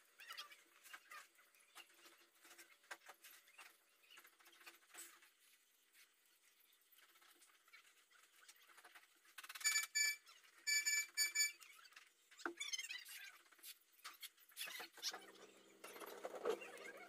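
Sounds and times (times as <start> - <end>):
shrill high beeps: 9.6 - 11.6.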